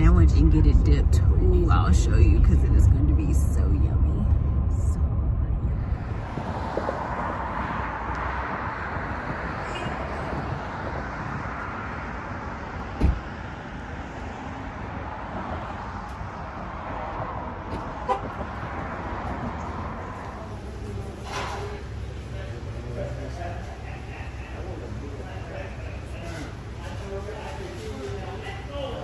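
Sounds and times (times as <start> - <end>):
road traffic noise: 0.0 - 29.0
loud sharp thump: 12.9 - 13.3.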